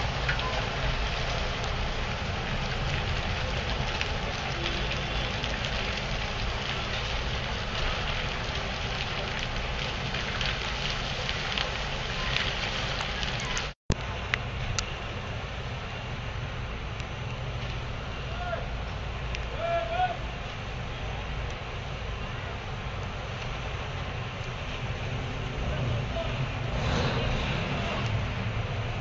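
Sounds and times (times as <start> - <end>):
fire crackling with pops: 0.0 - 29.0.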